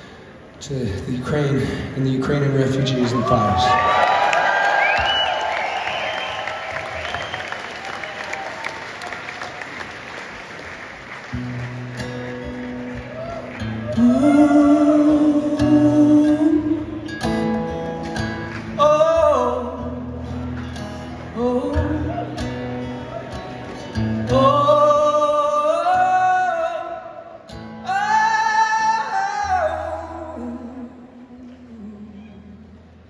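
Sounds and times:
strummed acoustic guitar: 0:11.3 - 0:30.9
man singing: 0:14.0 - 0:17.1, 0:18.8 - 0:20.0, 0:21.3 - 0:22.5, 0:24.2 - 0:32.6.

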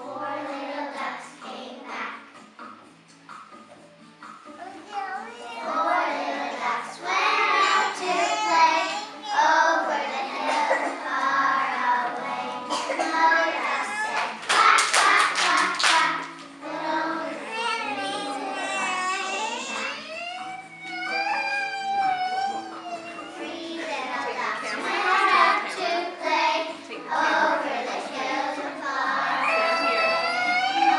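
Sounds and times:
children singing together: 0:00.0 - 0:02.4, 0:05.2 - 0:30.9
children clapping: 0:13.9 - 0:16.6.

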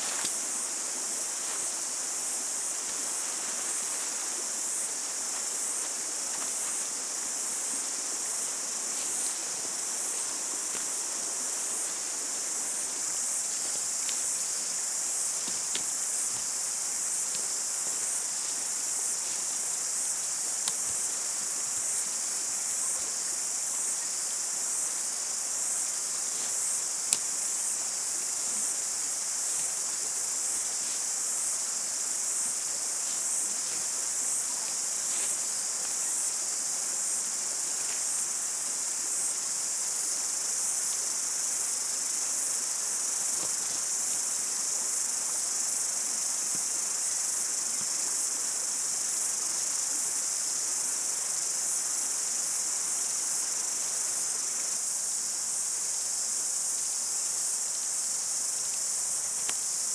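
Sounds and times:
insects chorus: 0:00.0 - 0:59.9.

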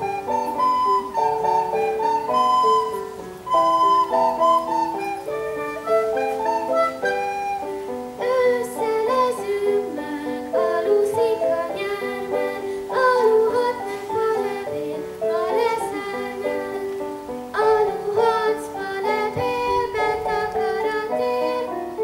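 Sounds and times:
child singing: 0:08.2 - 0:22.0.

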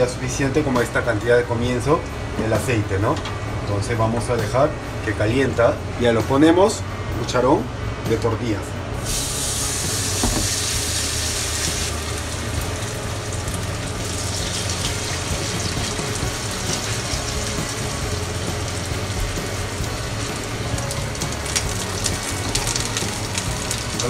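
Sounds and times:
batter sizzling in hot oil: 0:09.0 - 0:24.0.

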